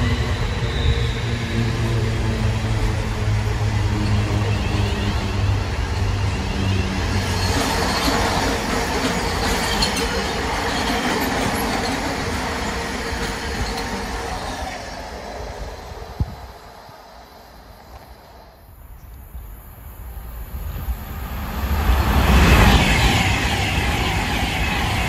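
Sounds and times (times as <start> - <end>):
electric train passing with hum: 0.0 - 25.0
freight train wagons rolling: 4.0 - 14.6.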